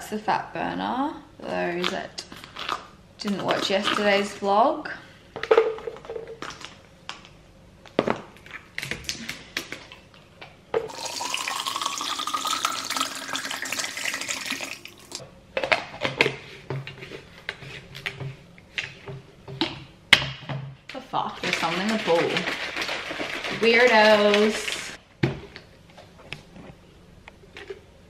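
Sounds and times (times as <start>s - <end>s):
water pouring into plastic bottle: 10.9s - 15.2s.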